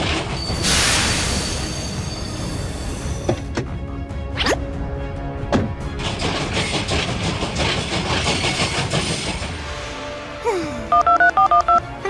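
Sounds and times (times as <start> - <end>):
music: 0.1 - 12.0
train clattering on rails: 5.6 - 9.9
phone keypad beeps: 10.9 - 11.9.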